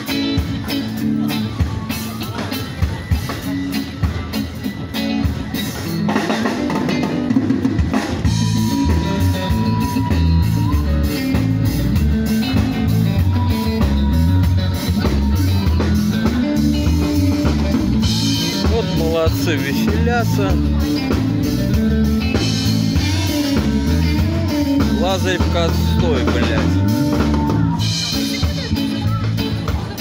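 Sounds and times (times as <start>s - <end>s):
drum kit beating: 0.0s - 30.0s
live band playing: 0.0s - 30.0s.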